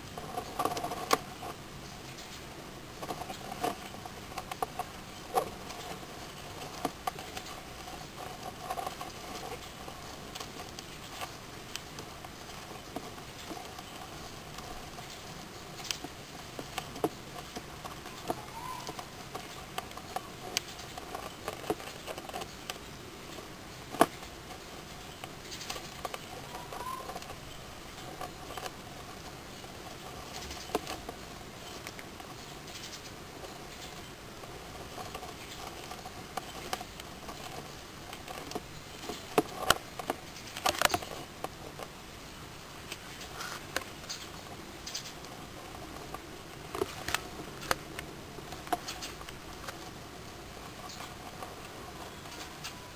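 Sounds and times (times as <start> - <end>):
hermit crab shells clicking: 3.0 - 42.0, 42.8 - 52.9
scraping on gravel: 42.8 - 52.9.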